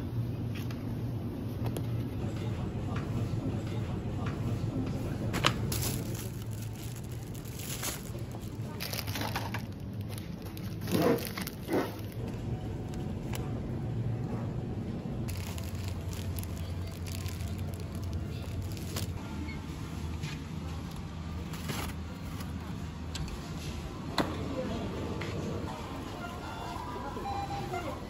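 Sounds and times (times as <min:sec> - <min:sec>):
low background hum: 0:00.0 - 0:28.0
plastic packaging crinkling: 0:05.6 - 0:12.2, 0:15.3 - 0:19.2.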